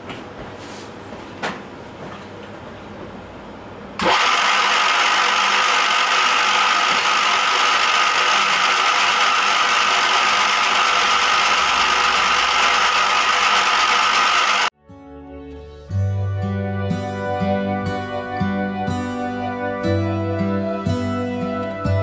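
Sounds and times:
milling cutter cutting steel: 4.0 - 14.7.

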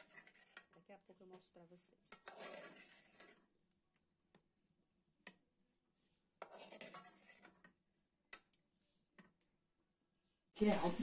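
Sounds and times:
metal spoon scraping saucepan: 0.0 - 3.5, 6.4 - 7.8.

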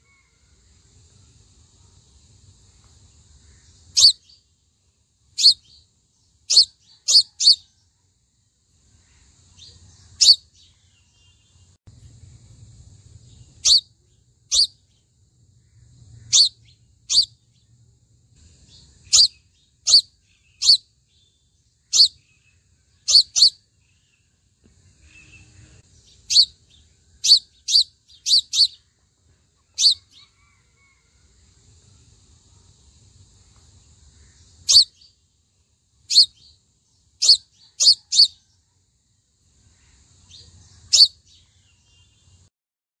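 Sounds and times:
bird chip calls: 4.0 - 4.2, 5.4 - 5.7, 6.5 - 7.6, 9.6 - 10.4, 13.6 - 13.8, 14.5 - 14.8, 16.2 - 17.4, 19.1 - 20.8, 21.9 - 22.2, 23.1 - 23.6, 26.2 - 26.5, 27.2 - 28.8, 29.7 - 30.3, 34.6 - 35.0, 36.1 - 36.4, 37.2 - 38.4, 40.3 - 41.2.

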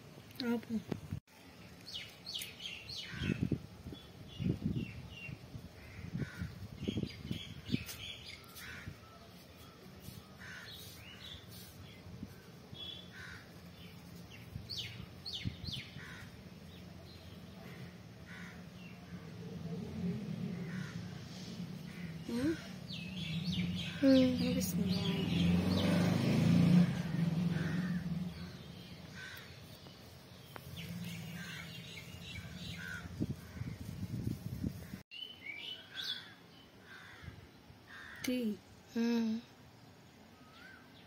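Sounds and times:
birds chirping: 0.3 - 38.6.

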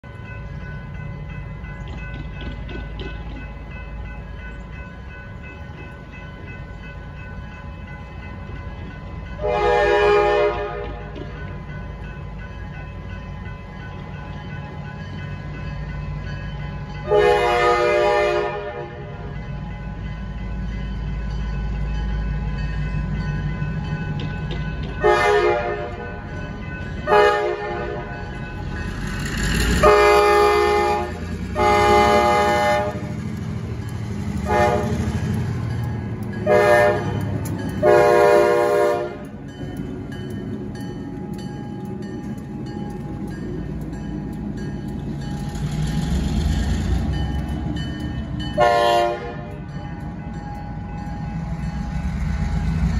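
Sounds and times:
diesel engines rumbling: 0.0 - 52.9
locomotive air horn blasts: 9.4 - 11.2, 17.1 - 19.2, 25.0 - 26.2, 27.0 - 28.2, 29.8 - 33.2, 34.4 - 35.1, 36.4 - 37.2, 37.8 - 39.2, 48.6 - 49.6.

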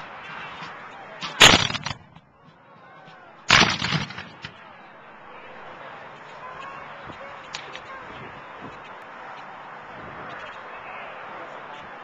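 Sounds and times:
musket fire volleys: 0.5 - 2.2, 3.5 - 4.6.

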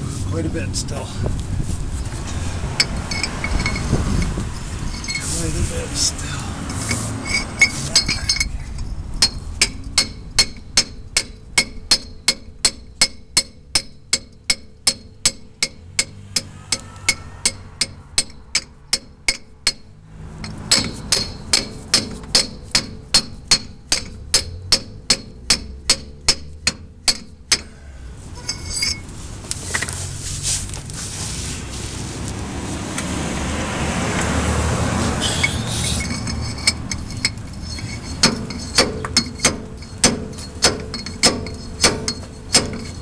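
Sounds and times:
hammer tapping on a pipe: 20.7 - 27.7.

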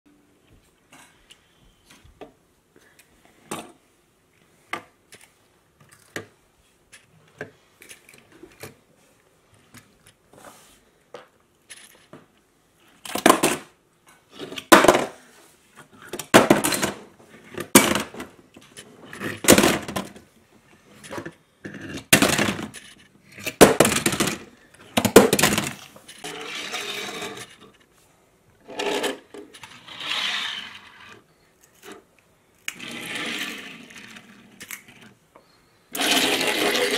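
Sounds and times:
toy cars clattering into tray: 22.0 - 27.6
cars scraping across tabletop: 26.1 - 27.8, 28.6 - 32.0, 32.7 - 35.1
toy cars clicking: 35.9 - 36.9.

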